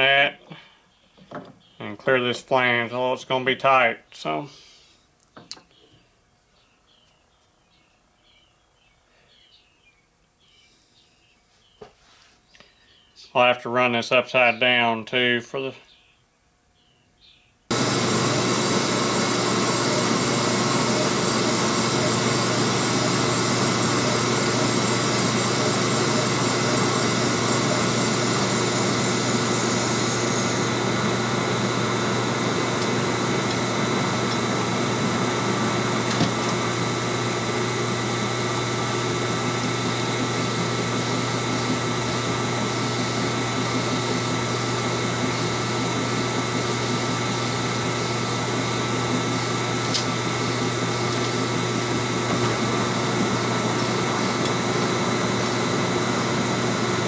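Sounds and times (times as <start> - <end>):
lathe machine hum: 17.7 - 57.0.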